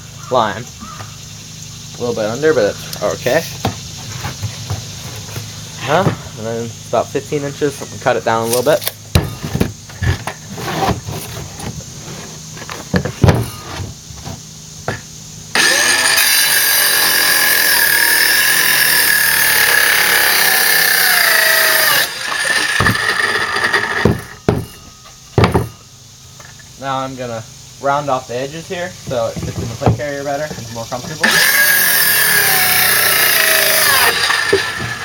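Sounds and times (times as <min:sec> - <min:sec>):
circular saw cutting plywood: 0:08.4 - 0:12.4, 0:15.5 - 0:24.8, 0:29.1 - 0:35.0
knocks on a wooden bench: 0:24.1 - 0:24.8, 0:25.4 - 0:25.8.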